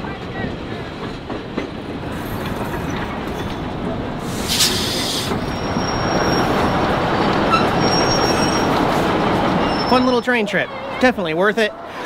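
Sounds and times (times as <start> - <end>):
train coach rumbling on rails: 0.0 - 10.2
short hiss: 4.2 - 5.4
high squeal from running gear: 4.6 - 6.7, 7.5 - 8.8, 9.6 - 10.2.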